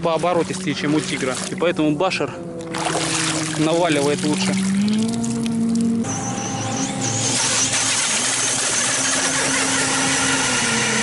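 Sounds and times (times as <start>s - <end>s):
electric motor whining: 2.4s - 11.0s.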